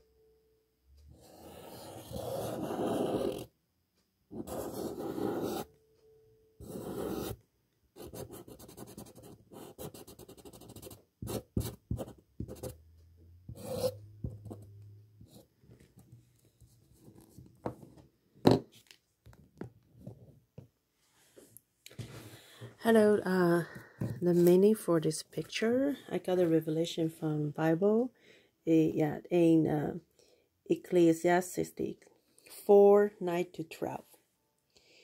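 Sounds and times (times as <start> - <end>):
marker pen scratching on paper: 1.1 - 3.5, 4.3 - 5.7, 6.6 - 7.4, 8.0 - 12.8, 13.5 - 15.5.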